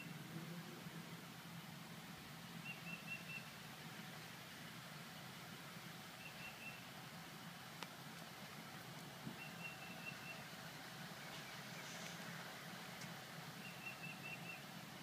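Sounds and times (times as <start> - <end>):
bird chirping: 2.6 - 3.6, 6.2 - 6.9, 9.3 - 12.0, 13.6 - 14.8.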